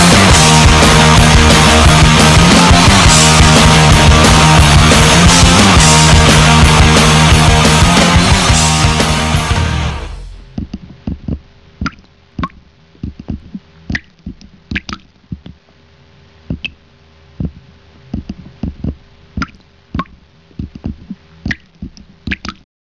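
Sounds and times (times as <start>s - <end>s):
water splashing and dripping: 13.4s - 15.1s, 20.8s - 22.6s.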